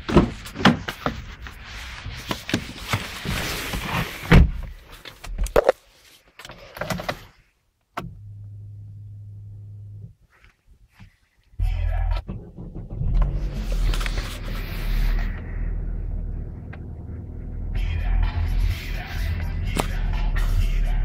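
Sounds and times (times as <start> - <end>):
handling rustles and knocks: 0.0 - 7.4
car engine idling: 11.6 - 21.0.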